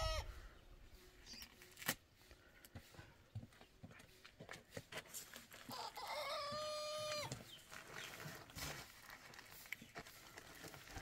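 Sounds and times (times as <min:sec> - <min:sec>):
rooster crowing: 0:05.7 - 0:07.3.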